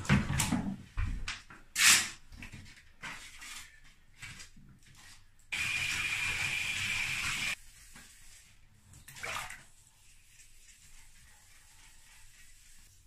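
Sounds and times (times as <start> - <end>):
sponge scrubbing plastic: 4.9 - 13.0
water rushing into bathtub: 5.5 - 7.6, 9.0 - 9.8.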